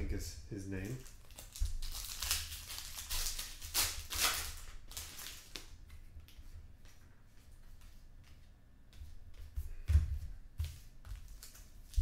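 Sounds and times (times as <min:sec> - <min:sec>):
plastic wrapper tearing and crinkling: 0:00.8 - 0:05.7, 0:11.3 - 0:12.0.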